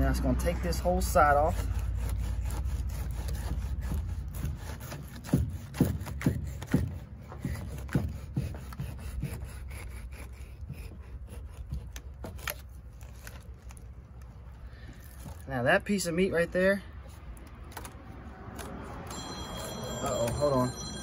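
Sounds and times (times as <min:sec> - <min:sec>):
knife sawing through fish skin: 0:00.4 - 0:15.5.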